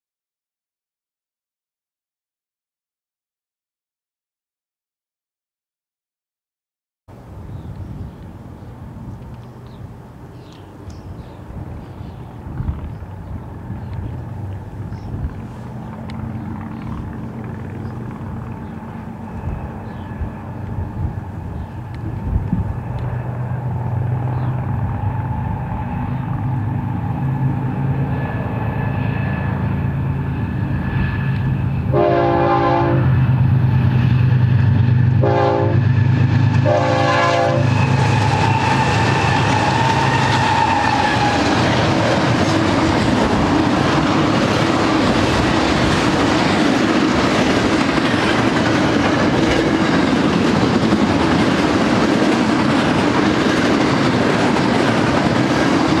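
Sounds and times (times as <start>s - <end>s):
diesel locomotive engine rumble: 7.1s - 56.0s
train wheels on rails: 7.2s - 56.0s
train horn blasts: 31.8s - 33.4s, 35.2s - 35.9s, 36.6s - 41.4s.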